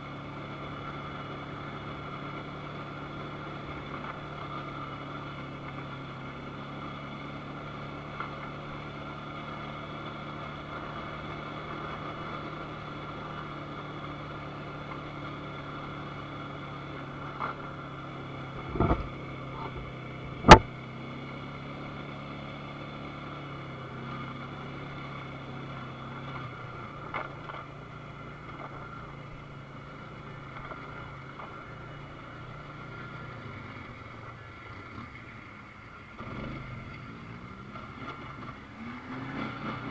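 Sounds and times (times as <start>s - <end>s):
atv engine running: 0.0s - 39.9s
sharp knocks: 18.6s - 19.1s, 20.4s - 20.7s.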